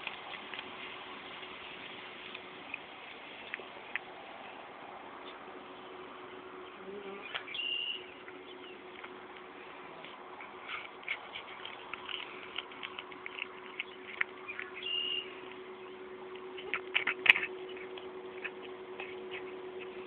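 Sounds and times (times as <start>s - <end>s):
cat chewing crunches: 0.0s - 4.4s, 8.2s - 20.0s
low hum: 0.0s - 20.0s.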